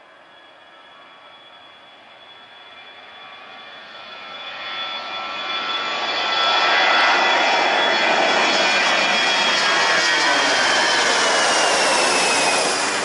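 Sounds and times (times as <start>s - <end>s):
high jet engine whine: 0.0s - 13.0s
jet airliner taking off: 0.0s - 13.0s.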